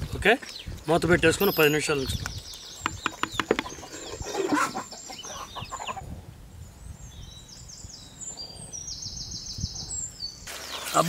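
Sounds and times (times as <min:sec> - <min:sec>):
small birds chirping trills: 0:00.3 - 0:11.0
sharp clicks: 0:02.2 - 0:03.7
chickens clucking: 0:02.9 - 0:06.1.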